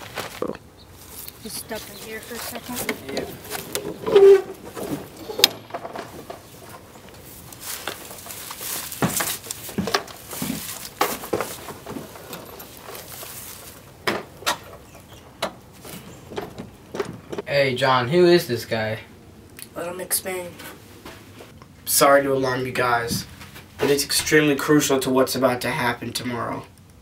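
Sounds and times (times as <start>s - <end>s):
footsteps inside trailer: 0.0s - 17.5s, 20.6s - 21.6s, 23.1s - 24.3s.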